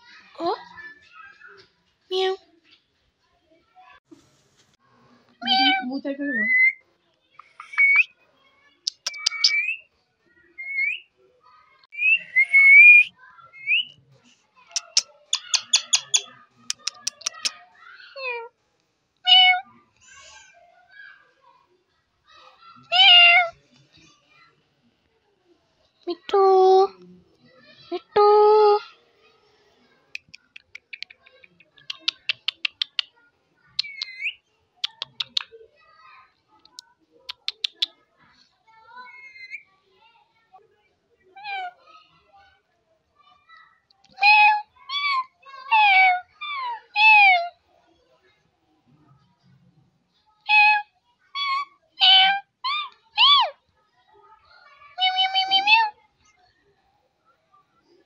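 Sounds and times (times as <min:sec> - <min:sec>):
parakeet clicking calls: 0:08.9 - 0:09.8, 0:14.7 - 0:17.6, 0:30.2 - 0:33.1, 0:33.8 - 0:35.5, 0:36.7 - 0:37.9
parakeet whistling: 0:09.1 - 0:09.8.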